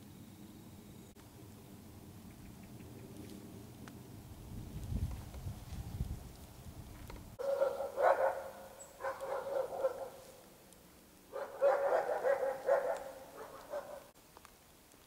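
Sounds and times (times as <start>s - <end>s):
dog barking: 7.4s - 10.4s, 11.3s - 14.2s.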